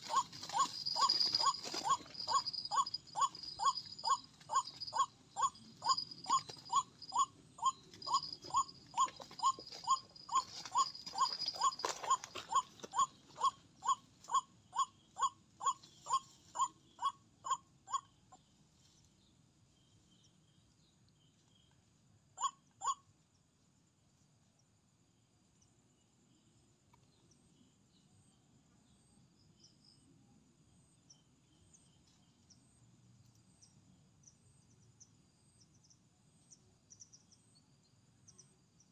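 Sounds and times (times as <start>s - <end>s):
waterhen calling: 0.0s - 13.6s
insects chirring: 0.0s - 18.6s.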